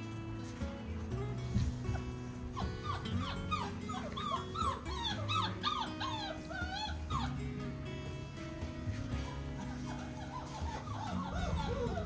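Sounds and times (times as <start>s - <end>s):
puppy whining: 1.1s - 7.6s, 8.9s - 12.0s.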